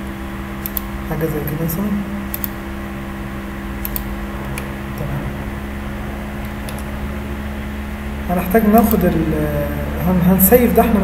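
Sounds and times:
mechanical hum with low drone: 0.0s - 11.0s
computer mouse clicks: 0.6s - 0.9s, 2.3s - 2.6s, 3.8s - 5.1s, 6.4s - 6.9s.

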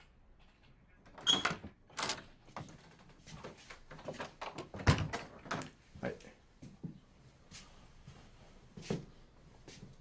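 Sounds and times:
door being opened: 1.1s - 3.1s.

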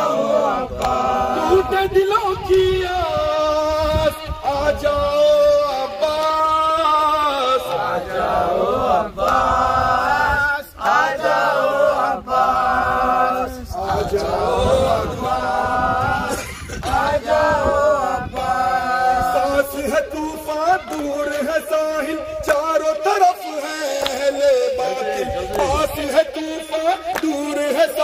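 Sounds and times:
man chanting a lament into a microphone: 0.0s - 7.8s, 16.9s - 28.0s
several voices chanting together: 0.0s - 28.0s.

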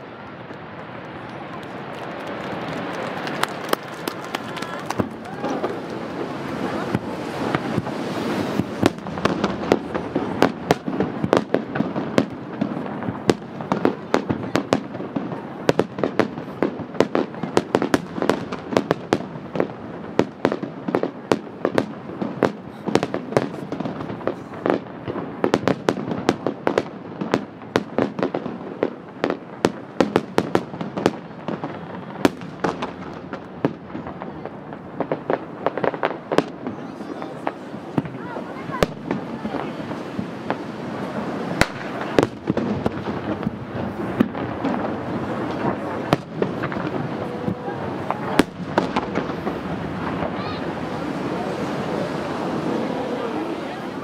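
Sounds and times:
firework shells bursting: 38.8s - 47.3s.

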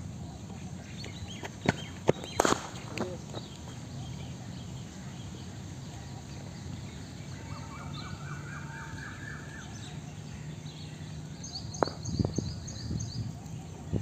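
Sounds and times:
birds chirping: 0.0s - 14.0s
cricket ball hitting bat: 1.6s - 3.1s, 11.7s - 12.4s.

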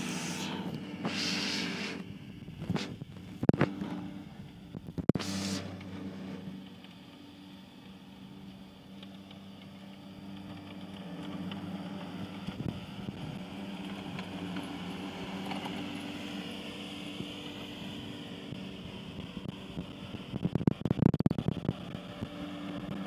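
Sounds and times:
tractor engine mowing grass: 0.0s - 23.0s.

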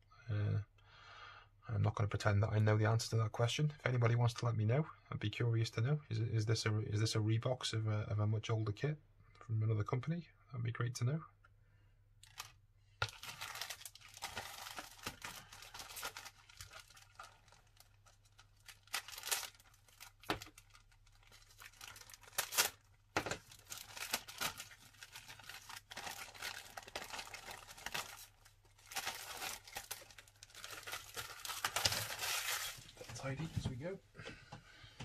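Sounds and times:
plastic bag crinkling: 12.2s - 33.0s.

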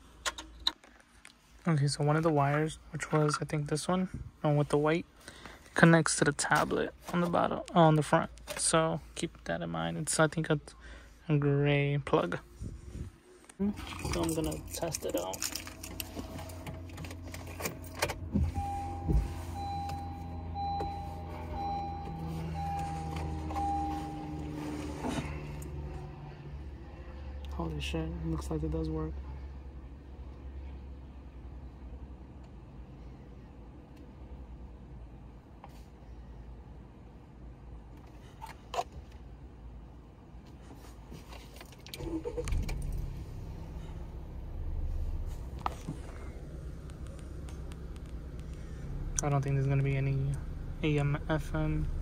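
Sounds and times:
car engine starting and idling: 13.3s - 29.1s, 41.2s - 52.0s
car warning chime beeping: 14.1s - 25.8s
clicks: 46.8s - 49.3s.

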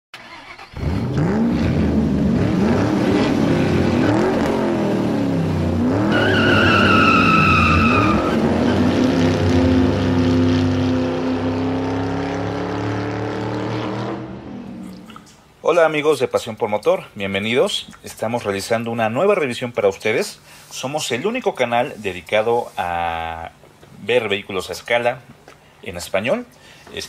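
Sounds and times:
car engine revving: 0.2s - 15.2s
tyre squeal: 6.1s - 8.9s.

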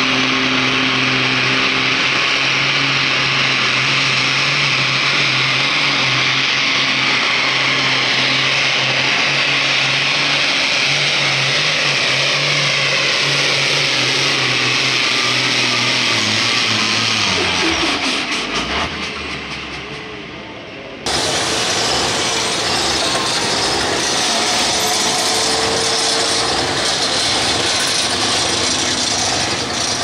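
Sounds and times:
diesel truck engine at full throttle: 0.0s - 30.0s
high-pitched turbo scream: 21.1s - 30.0s.

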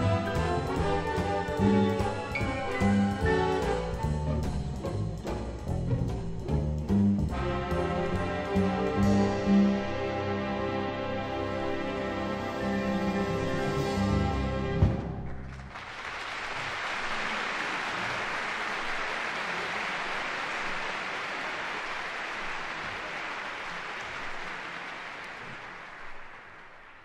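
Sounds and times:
audience applauding: 15.2s - 27.0s.

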